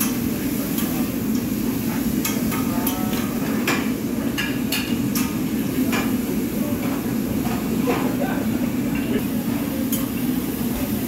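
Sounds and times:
metal spatulas clanking on griddle: 0.0s - 6.2s.

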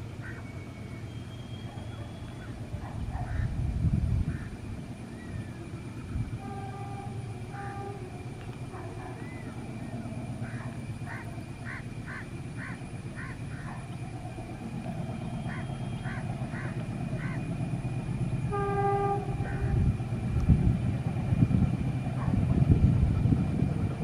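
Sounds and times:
train rumbling: 0.0s - 24.0s
bird calling: 0.1s - 3.6s, 6.4s - 17.6s
locomotive horn blast: 6.3s - 9.1s, 18.4s - 20.1s.

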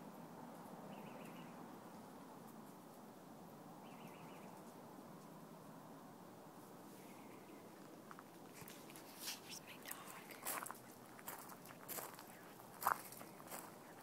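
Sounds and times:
faint background hiss: 0.0s - 14.0s
faint high chirp: 0.9s - 1.6s, 3.8s - 4.6s.

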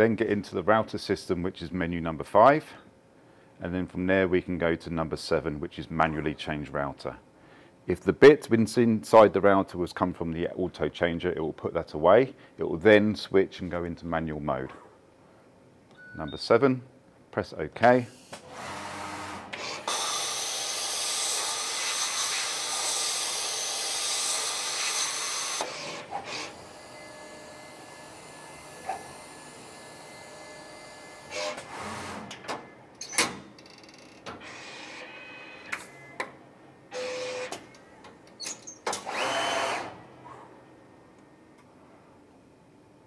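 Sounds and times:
cutting machine humming: 19.9s - 31.6s.

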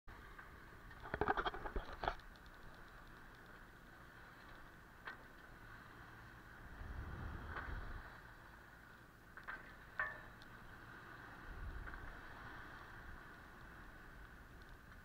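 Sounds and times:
low wind rumble: 0.1s - 15.0s
water washing along a hull: 0.1s - 15.0s
light clicks: 0.9s - 5.5s, 13.2s - 15.0s.

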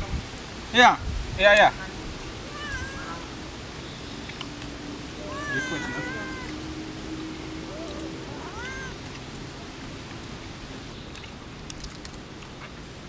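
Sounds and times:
cat meowing: 2.4s - 3.4s, 5.2s - 6.7s, 7.7s - 9.0s
faint clicks: 11.0s - 12.7s.

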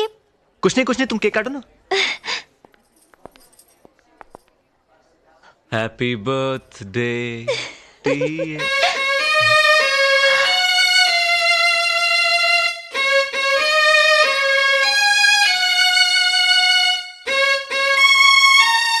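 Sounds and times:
solo violin playing slow melody: 8.1s - 19.0s.

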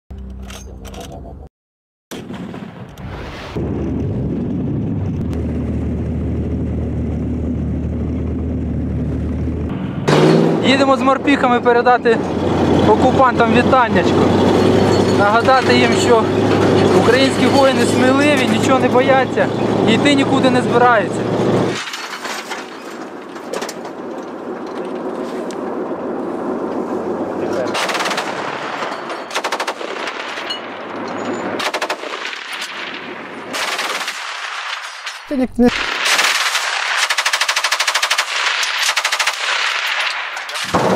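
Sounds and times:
vehicle engine humming: 4.6s - 21.8s.

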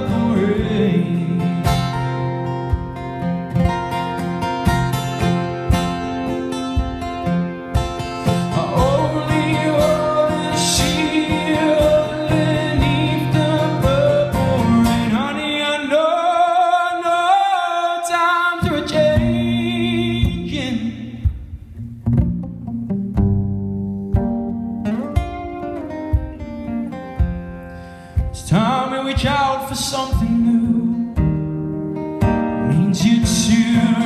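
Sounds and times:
man singing: 0.0s - 2.4s, 8.2s - 21.4s, 28.2s - 31.4s, 32.5s - 34.0s
strummed acoustic guitar: 0.0s - 34.0s.

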